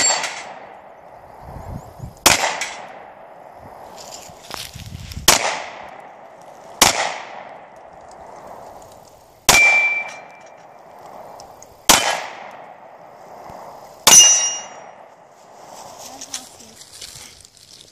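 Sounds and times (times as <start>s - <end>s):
steel plate targets ringing: 0.0s - 0.7s, 9.5s - 10.7s, 14.0s - 15.0s
handgun shots with echo: 2.3s - 3.0s, 5.3s - 6.0s, 6.8s - 7.5s, 11.9s - 12.6s.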